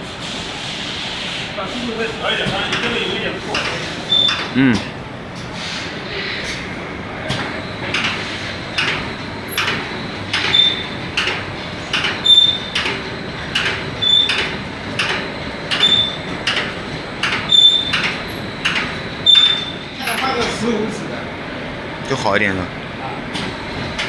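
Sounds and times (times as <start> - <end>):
short high squeak: 4.1 - 4.5, 12.2 - 12.7, 15.8 - 16.2, 17.5 - 17.9, 19.3 - 19.9
machine mechanical knocks: 7.2 - 20.6.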